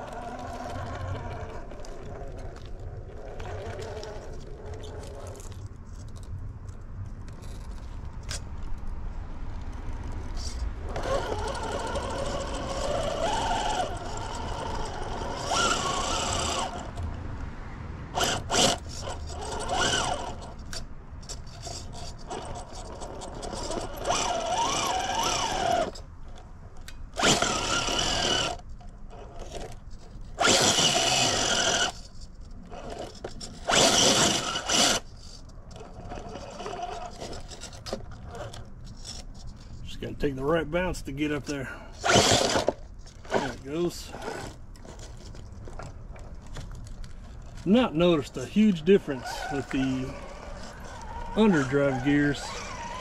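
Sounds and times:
tyres scraping on rock: 0.0s - 8.8s, 9.8s - 17.1s, 18.1s - 26.4s, 27.1s - 53.0s
electric motor whining: 10.8s - 17.0s, 18.1s - 20.6s, 21.6s - 26.0s, 27.2s - 28.6s, 30.3s - 32.1s, 32.7s - 35.1s, 42.0s - 45.0s, 49.1s - 53.0s.

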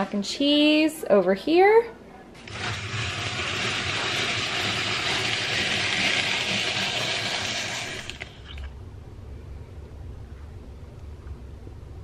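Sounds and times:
hand-cranked apple peeler: 2.4s - 8.3s.

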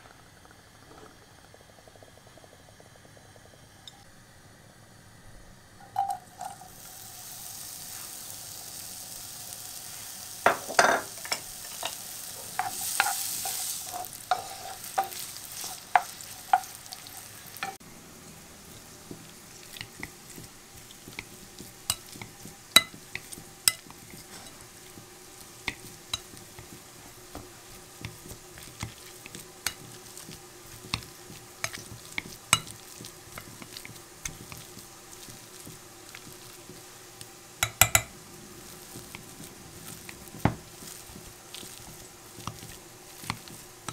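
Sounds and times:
onion sizzling in hot oil: 0.0s - 43.9s
stirring scrapes and knocks: 11.2s - 17.0s, 18.7s - 43.9s.

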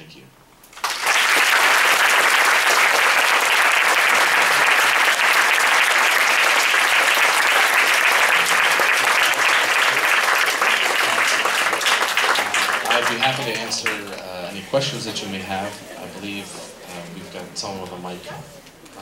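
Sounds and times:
audience applauding: 0.7s - 14.2s.

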